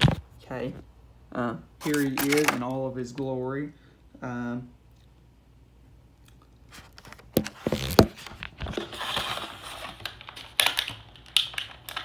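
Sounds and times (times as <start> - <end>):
plastic blister tray crackling: 7.3 - 12.0.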